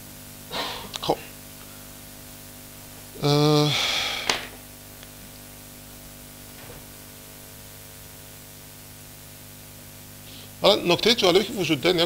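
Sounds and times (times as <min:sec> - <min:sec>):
low electrical hum: 0:00.0 - 0:12.0
even hiss: 0:03.2 - 0:04.6.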